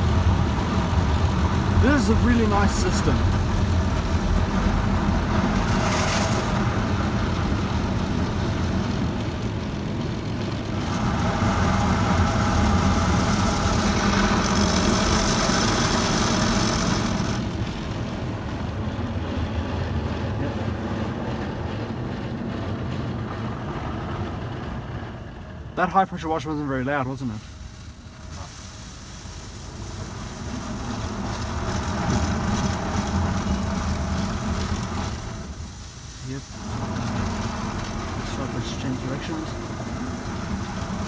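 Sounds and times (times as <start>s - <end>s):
low rumble: 0.0s - 28.6s
water jets spraying over car: 0.0s - 41.0s.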